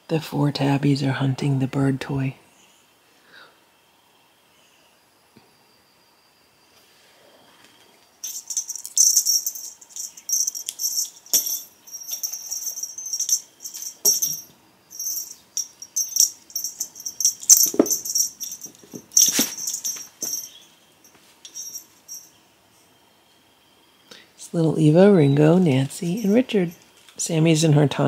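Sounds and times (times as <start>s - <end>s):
cat toy rustling and rattling: 8.2s - 22.4s.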